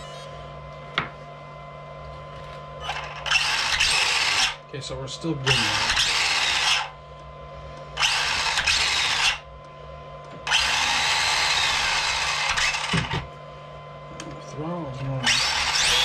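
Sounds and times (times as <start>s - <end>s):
electric motor spinning up: 2.8s - 4.6s, 5.4s - 7.0s, 8.0s - 9.5s, 10.4s - 13.3s, 15.2s - 16.0s.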